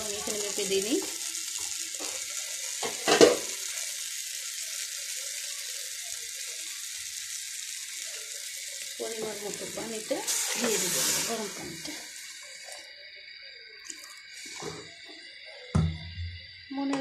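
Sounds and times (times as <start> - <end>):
rice sizzling in oil: 0.0 - 17.0
sharp knock: 15.8 - 16.1.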